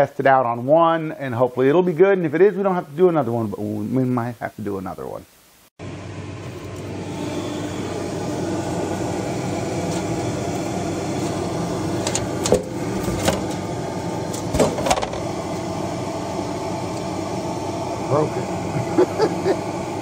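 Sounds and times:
fan whirring: 5.8s - 20.0s.

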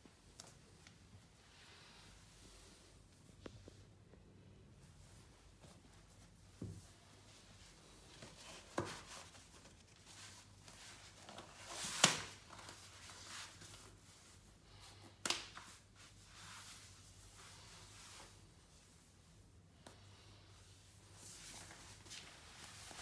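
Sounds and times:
fabric rustling and sliding: 4.8s - 15.0s, 15.6s - 19.4s, 21.0s - 23.0s.

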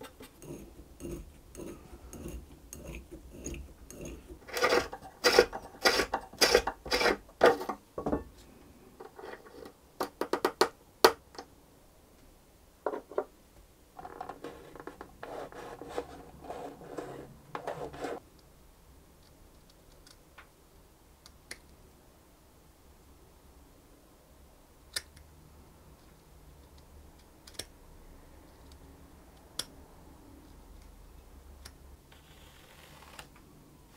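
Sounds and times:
hand tool scraping wood: 0.0s - 7.8s, 14.4s - 18.2s.

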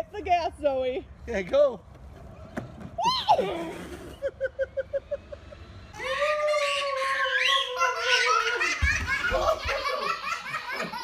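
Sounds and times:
high squeals and chatter: 5.9s - 8.4s.

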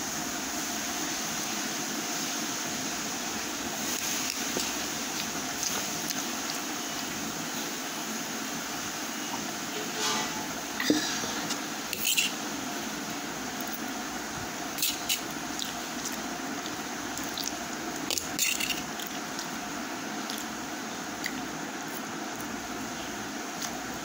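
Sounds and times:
steady background hiss: 0.0s - 24.0s
wet chewing and slurping: 3.8s - 7.3s, 14.8s - 19.6s, 20.2s - 22.6s.

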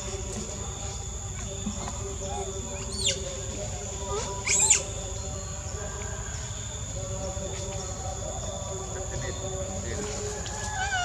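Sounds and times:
insects droning: 0.0s - 11.0s
monkey chirp: 2.3s - 3.2s, 4.0s - 5.0s, 10.6s - 11.0s
monkey squealing: 10.7s - 11.0s.

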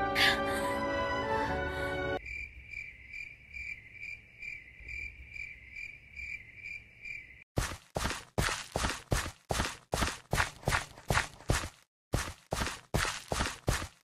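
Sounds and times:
cricket chirping: 2.2s - 7.5s
footsteps: 7.6s - 14.0s.

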